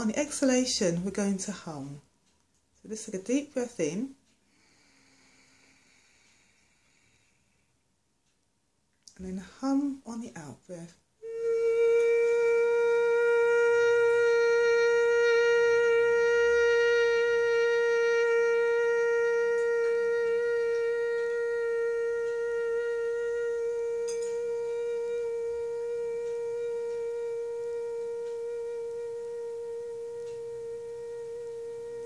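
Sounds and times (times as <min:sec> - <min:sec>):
woman humming steady note: 0:10.7 - 0:32.0.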